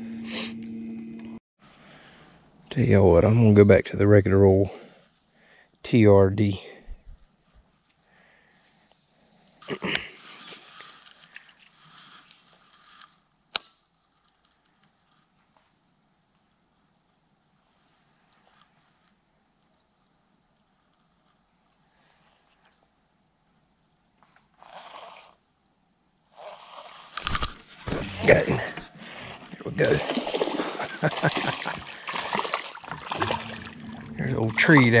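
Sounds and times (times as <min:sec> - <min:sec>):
insects droning: 0:00.0 - 0:35.0
sharp click: 0:13.5 - 0:13.8.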